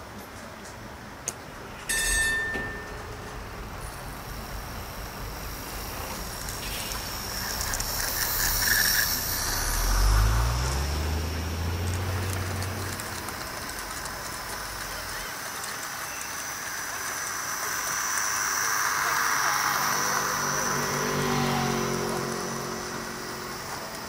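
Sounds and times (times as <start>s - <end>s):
model tram running: 0.0s - 24.0s
tram bell ringing: 1.7s - 6.2s, 17.2s - 24.0s
low hum rising in pitch: 19.3s - 24.0s.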